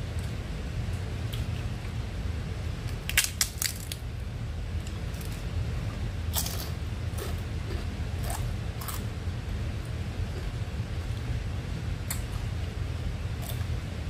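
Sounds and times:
steady low hum: 0.0s - 14.0s
fried fish crackling when torn: 2.9s - 4.0s.

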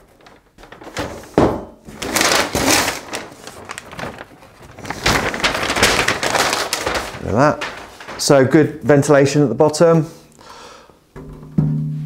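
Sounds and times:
packing paper crinkling: 0.0s - 9.9s.

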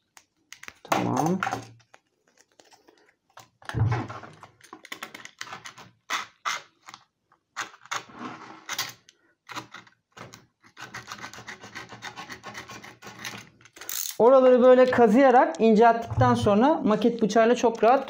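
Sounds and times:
hand tool scraping griptape: 5.5s - 9.9s, 10.6s - 13.5s.

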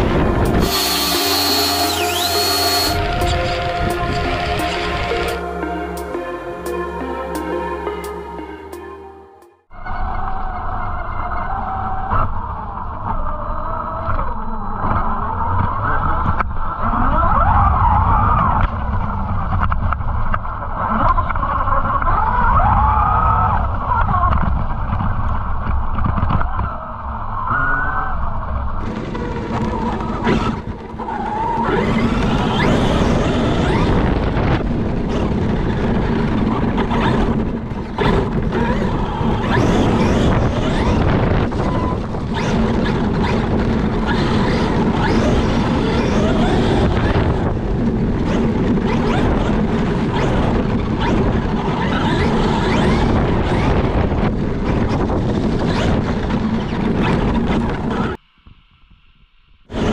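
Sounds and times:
electric motor humming: 0.0s - 5.3s
wind noise: 0.0s - 5.4s, 9.8s - 59.9s.

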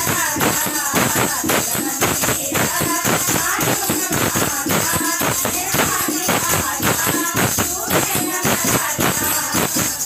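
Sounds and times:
jingling hand percussion: 0.0s - 10.0s.

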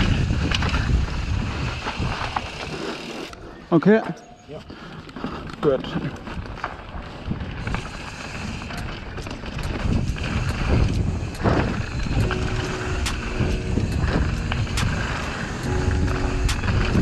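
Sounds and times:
bike tyres rolling on dirt: 0.0s - 3.3s, 4.8s - 12.2s
bike clicking and rattling: 0.0s - 3.4s, 4.8s - 12.2s.

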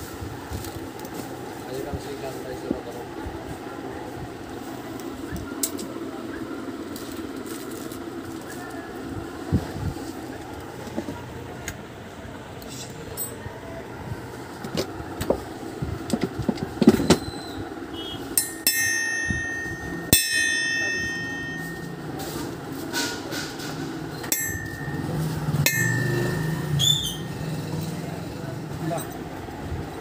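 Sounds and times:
hammer tapping metal punch: 18.4s - 21.9s, 24.2s - 27.3s
ringing metallic hammer strikes: 18.4s - 22.1s, 24.2s - 27.9s.

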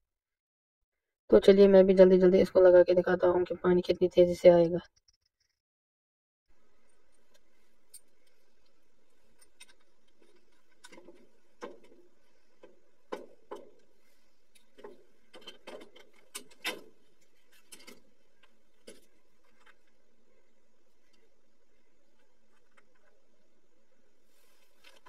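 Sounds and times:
faint steady hiss: 6.5s - 25.0s
plastic pipe clicks and knocks: 9.6s - 12.0s, 12.6s - 13.9s.

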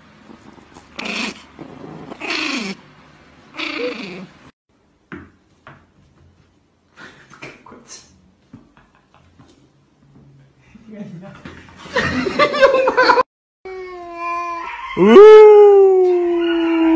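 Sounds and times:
puppy snarling: 0.3s - 2.8s, 3.5s - 4.4s.

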